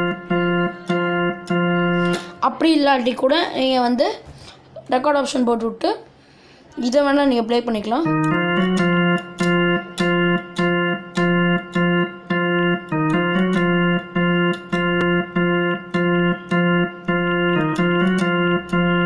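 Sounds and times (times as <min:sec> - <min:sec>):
electronic organ riff: 0:00.0 - 0:03.0, 0:08.0 - 0:19.0.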